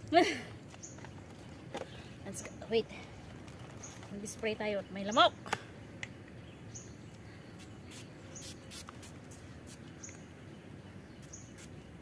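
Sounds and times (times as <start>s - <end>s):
bird chirping: 3.5s - 9.1s, 9.7s - 12.0s
pump spray bottle hissing: 7.9s - 9.8s.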